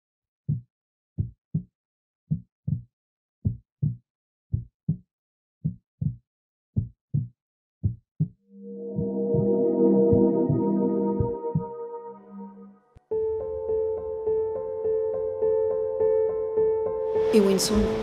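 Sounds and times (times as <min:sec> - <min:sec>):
heartbeat thumps: 0:05.6 - 0:06.2, 0:06.8 - 0:12.0
music: 0:07.9 - 0:18.0.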